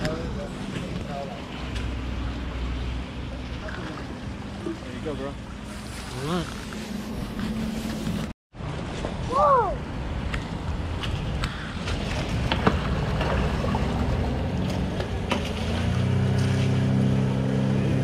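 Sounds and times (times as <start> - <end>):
motorboat engine: 0.0 - 8.3, 9.8 - 18.0
wind: 0.0 - 18.0
water lapping: 0.4 - 8.3, 10.5 - 17.5
fish splashing: 10.9 - 17.0.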